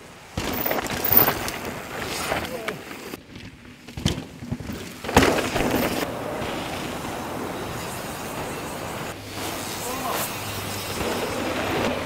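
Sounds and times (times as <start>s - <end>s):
bike tyres skidding on dirt: 0.0s - 12.0s
bike knocks and hits: 3.3s - 6.7s.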